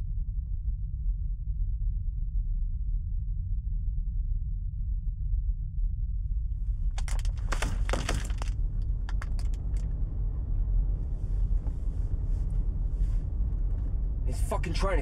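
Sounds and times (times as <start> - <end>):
road rumble inside car: 6.3 - 15.0.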